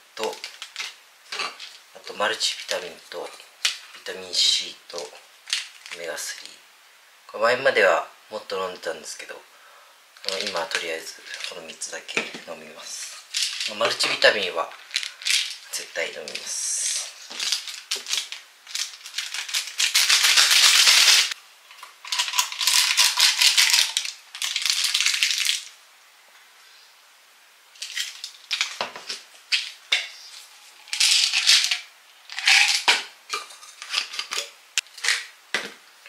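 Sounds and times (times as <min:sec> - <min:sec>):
pills rattling in plastic bottles: 0:00.2 - 0:01.8, 0:05.5 - 0:06.1, 0:10.2 - 0:11.6, 0:13.2 - 0:16.5, 0:17.3 - 0:25.7, 0:27.8 - 0:30.1, 0:30.7 - 0:35.3.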